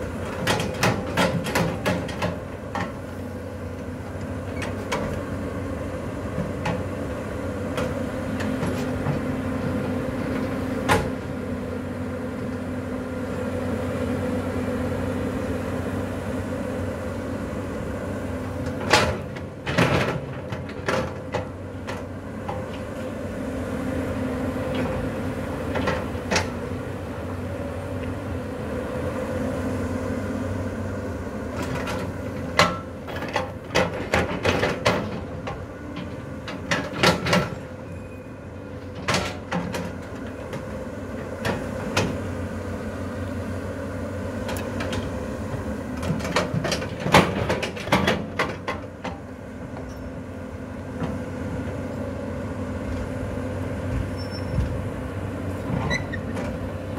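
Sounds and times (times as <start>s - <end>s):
excavator diesel engine running: 0.0s - 56.9s
excavator bucket clanks and knocks: 0.2s - 3.0s, 18.7s - 22.7s, 31.6s - 37.7s, 38.9s - 40.7s, 46.0s - 50.1s.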